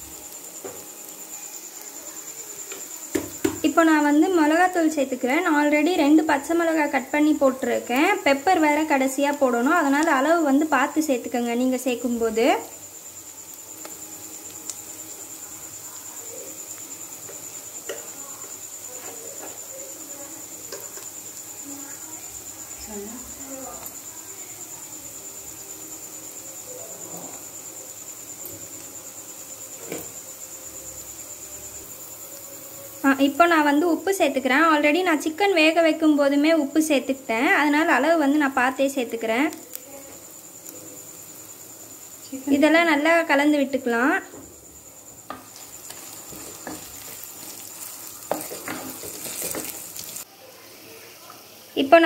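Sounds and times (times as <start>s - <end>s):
cricket trilling: 0.0s - 52.0s
food sizzling: 0.0s - 52.0s
wooden spatula scraping pot: 45.3s - 50.2s.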